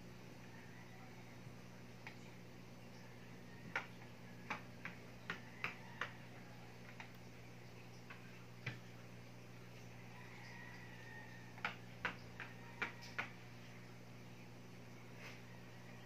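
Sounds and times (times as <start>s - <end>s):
faint low hum: 0.0s - 16.0s
cat paws clicking and tapping: 3.6s - 6.2s.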